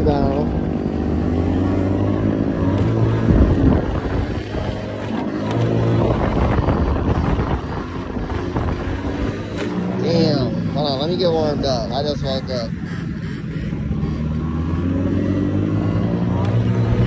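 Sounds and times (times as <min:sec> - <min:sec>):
scooter engine running: 0:00.0 - 0:17.0
wind noise on microphone: 0:03.0 - 0:09.6.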